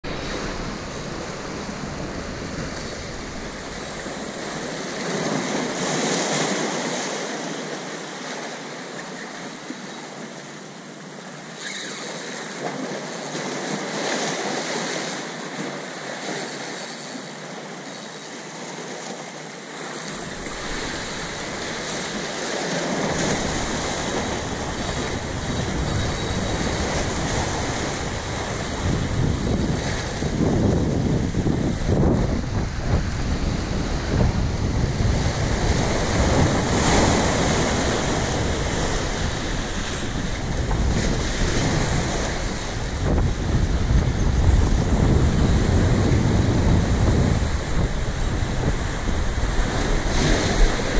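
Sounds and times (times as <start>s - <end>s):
wind rumble on microphone: 0.0s - 7.1s, 20.1s - 50.9s
waves splashing against boulders: 0.0s - 9.8s, 10.4s - 50.9s.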